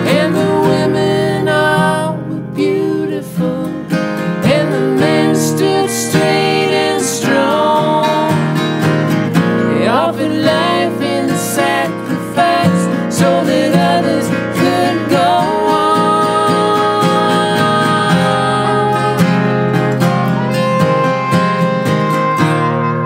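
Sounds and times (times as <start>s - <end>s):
picked lead guitar with slides: 0.0s - 23.0s
strummed guitar chords: 0.0s - 23.0s.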